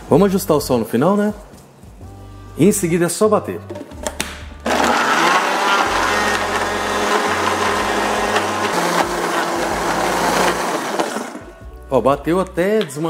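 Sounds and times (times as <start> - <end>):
blender motor chopping food: 4.6 - 11.5.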